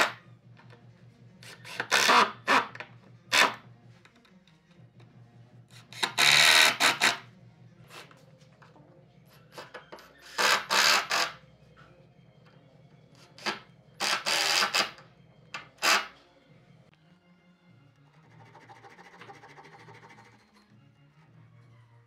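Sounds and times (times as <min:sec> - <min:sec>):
impact driver driving screws: 0:01.4 - 0:03.6, 0:05.9 - 0:07.2, 0:10.2 - 0:11.3, 0:13.4 - 0:15.0, 0:15.6 - 0:16.1.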